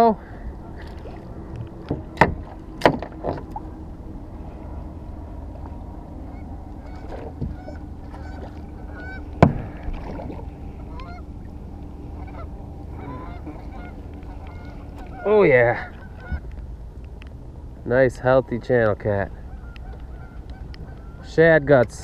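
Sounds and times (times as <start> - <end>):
birds honking: 0.2 - 16.6, 19.2 - 21.8
knocks and thumps in aluminium boat: 0.9 - 3.7, 6.8 - 11.2.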